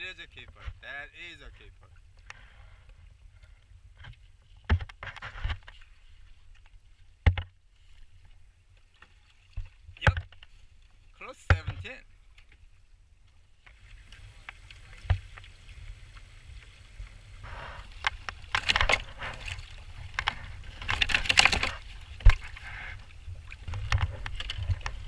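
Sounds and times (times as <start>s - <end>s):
wind rumble on microphone: 13.8s - 25.0s.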